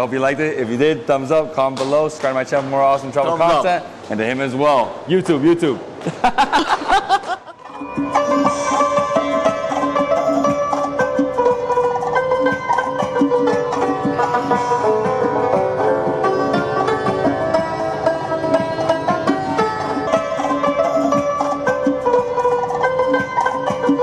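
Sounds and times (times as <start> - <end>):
plucked string instrument music: 7.6 - 24.0.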